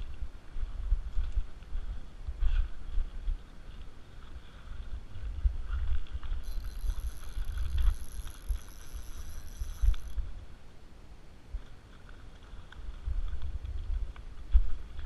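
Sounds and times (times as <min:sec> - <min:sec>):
wind rumble on microphone: 0:00.0 - 0:10.6, 0:11.5 - 0:15.0
faint clicks: 0:06.0 - 0:10.2
thin high whine: 0:06.4 - 0:10.2.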